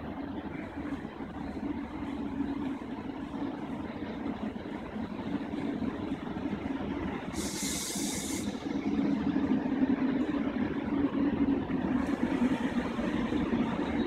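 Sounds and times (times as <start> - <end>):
train equipment humming: 0.0 - 14.0
compressed air hiss: 7.3 - 8.6.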